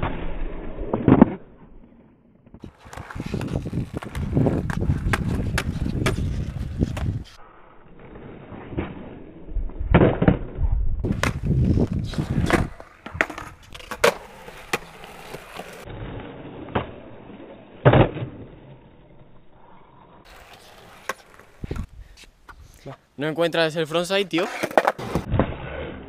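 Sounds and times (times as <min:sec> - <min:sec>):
skateboard wheels rolling on concrete: 0:00.0 - 0:26.0
skateboard clacking on ground: 0:02.6 - 0:07.2.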